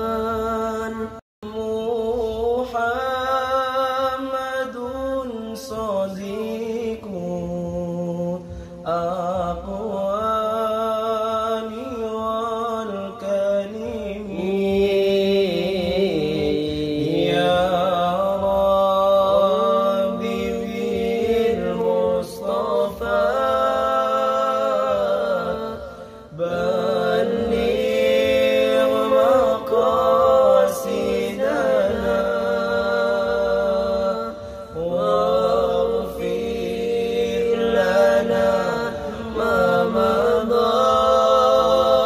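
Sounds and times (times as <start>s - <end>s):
two men singing together: 0.0s - 42.0s.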